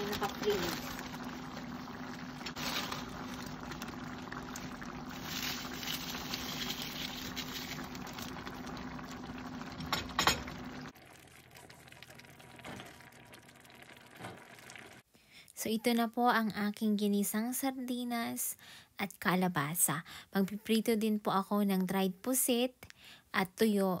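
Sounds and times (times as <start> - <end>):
stew simmering and bubbling: 0.0 - 15.9.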